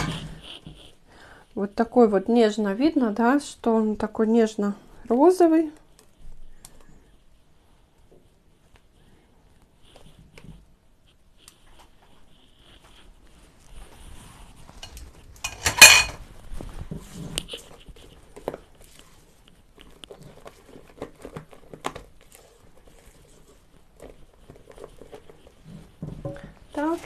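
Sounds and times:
spatula scraping metal pot: 0:00.0 - 0:00.8, 0:14.8 - 0:16.2.

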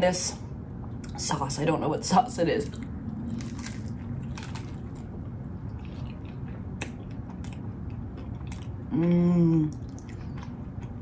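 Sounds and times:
closed-mouth hum: 0:00.0 - 0:11.0
mouth chewing food: 0:02.7 - 0:11.0.

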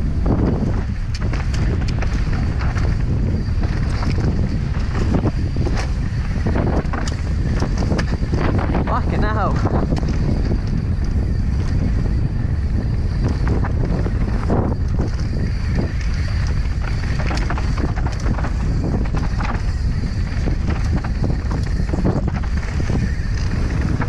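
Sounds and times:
bike knocks and rattles: 0:00.0 - 0:09.0, 0:09.6 - 0:24.0
wind buffeting microphone: 0:00.0 - 0:24.0.

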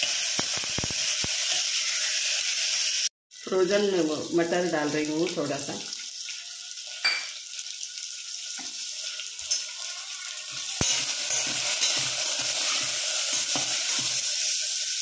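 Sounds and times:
vegetables sizzling in hot oil: 0:00.0 - 0:15.0
spatula scraping a pot: 0:10.5 - 0:14.5.

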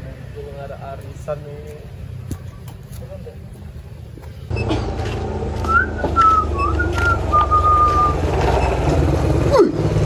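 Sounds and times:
person whistling a tune: 0:05.6 - 0:08.2.

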